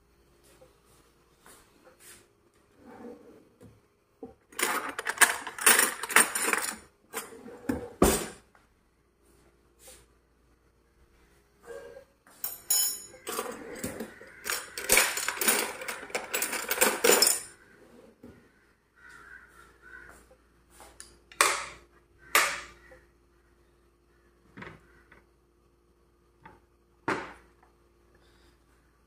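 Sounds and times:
crockery and cutlery clattering: 0:04.6 - 0:08.4, 0:12.4 - 0:17.6.

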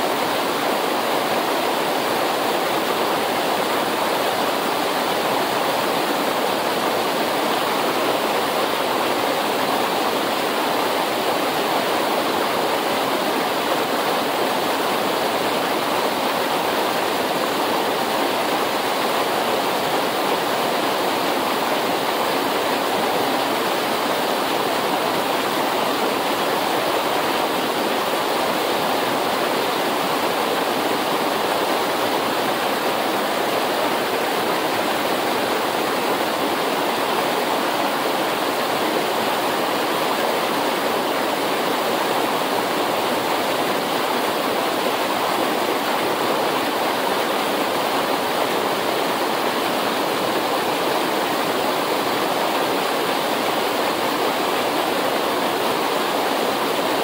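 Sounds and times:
river rushing: 0:00.0 - 0:57.0.

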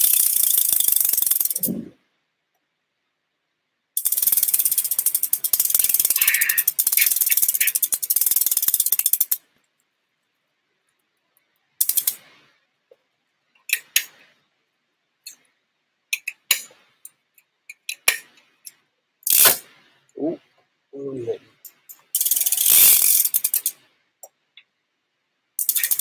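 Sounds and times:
bicycle hub ratcheting clicks: 0:00.0 - 0:01.7, 0:04.0 - 0:09.4, 0:11.8 - 0:12.2, 0:17.7 - 0:19.6, 0:21.7 - 0:23.8, 0:25.6 - 0:26.0.

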